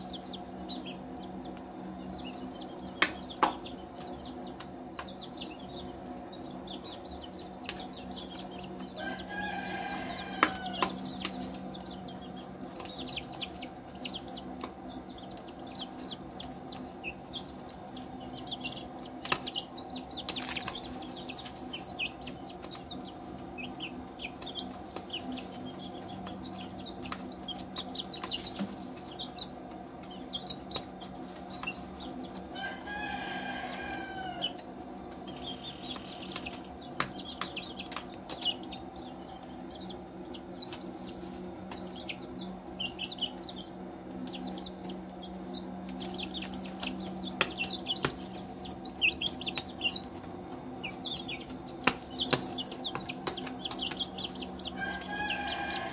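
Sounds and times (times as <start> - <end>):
chick calling: 0.0 - 55.9
chicks cheeping: 0.0 - 55.9
low hum: 0.0 - 55.9
beaks tapping plastic tray: 2.9 - 5.9, 7.6 - 17.5, 18.3 - 23.2, 24.2 - 29.4, 35.2 - 39.1, 45.8 - 55.9.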